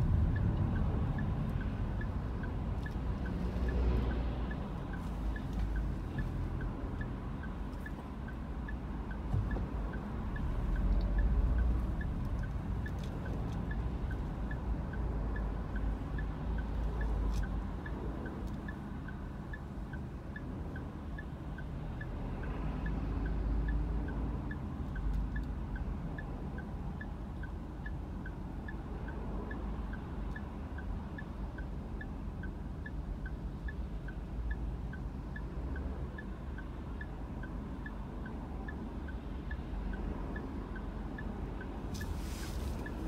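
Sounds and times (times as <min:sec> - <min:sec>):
light even ticking: 0:00.0 - 0:43.0.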